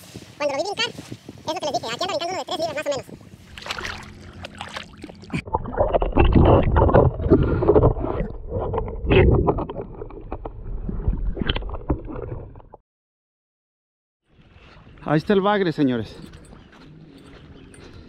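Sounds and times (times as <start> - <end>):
muffled underwater water sloshing: 3.4 - 12.8.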